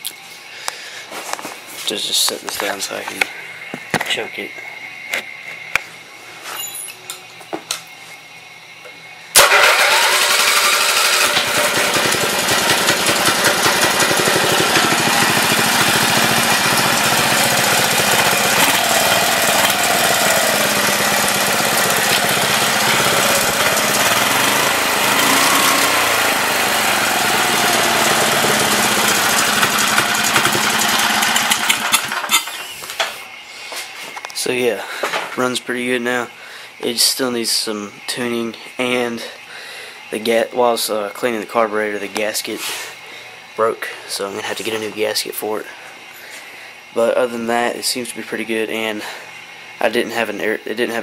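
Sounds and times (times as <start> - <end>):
engine running loudly: 9.4 - 32.4.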